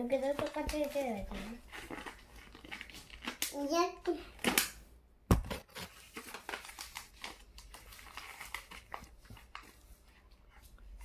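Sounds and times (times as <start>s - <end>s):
paper being folded: 5.7s - 11.0s.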